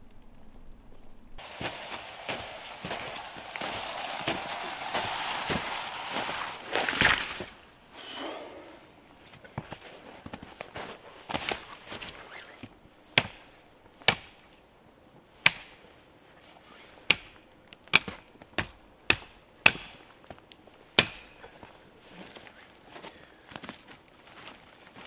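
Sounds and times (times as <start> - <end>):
hatchet chopping into log: 13.2 - 13.4, 14.1 - 14.4, 15.4 - 15.7, 17.1 - 20.0, 21.0 - 21.4.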